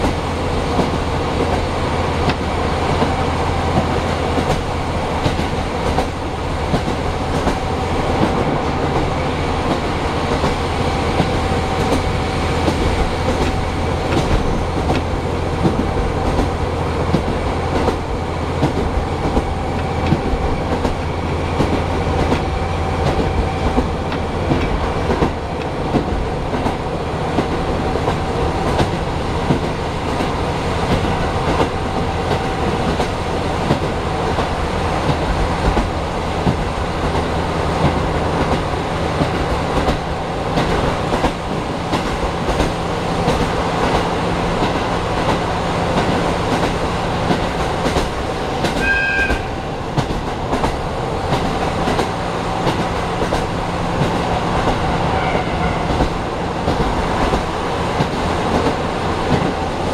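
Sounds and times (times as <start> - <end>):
train wheels and engine rumbling: 0.0 - 59.9.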